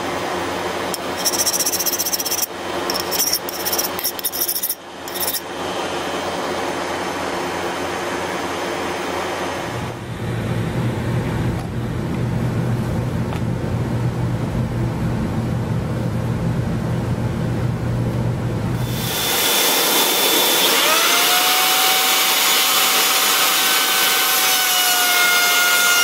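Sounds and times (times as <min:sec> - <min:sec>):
harsh scraping on steel blade: 0:01.0 - 0:05.5
forge burner roaring: 0:18.3 - 0:22.3.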